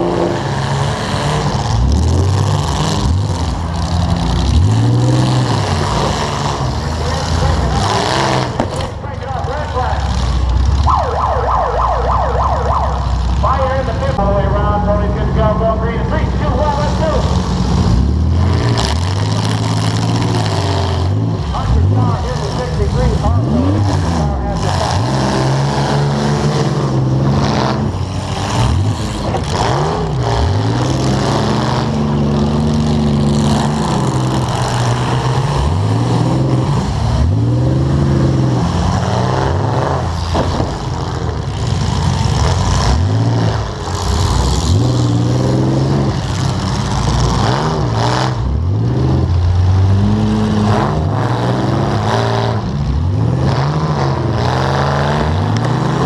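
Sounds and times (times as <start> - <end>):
car engine revving hard: 0.0 - 10.9, 13.4 - 56.0
car impact bangs: 8.4 - 9.0, 40.2 - 41.3.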